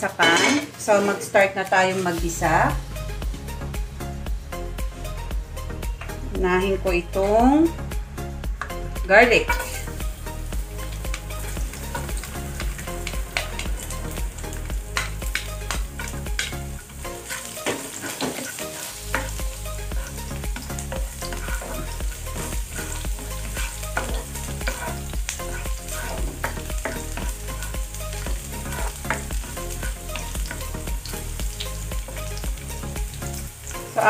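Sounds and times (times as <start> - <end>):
garlic sizzling in oil: 0.0 - 3.9, 8.5 - 34.0
spatula scraping and tapping pan: 9.4 - 10.0, 11.0 - 30.9.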